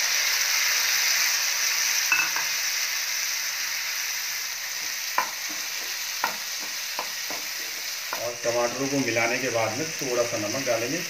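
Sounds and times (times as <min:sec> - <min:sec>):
tomatoes sizzling in oil: 0:00.0 - 0:11.0
spatula stirring in pan: 0:04.7 - 0:09.3
spatula knocking against pan: 0:05.2 - 0:08.3.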